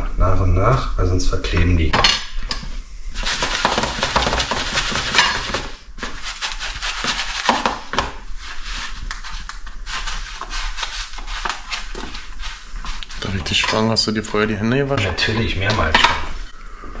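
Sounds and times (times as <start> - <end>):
fish pressed into breadcrumbs: 3.2 - 6.2.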